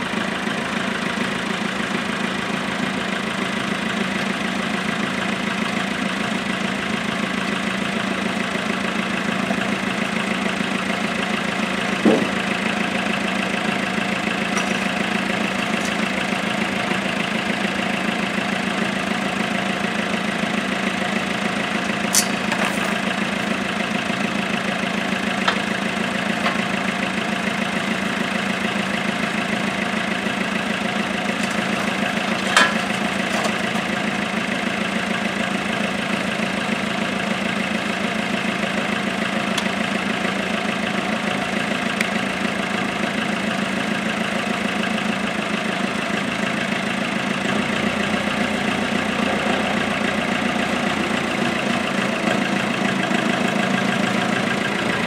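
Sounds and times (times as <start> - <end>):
tractor engine idling: 0.0 - 55.0
sharp metallic clank: 22.1 - 23.0.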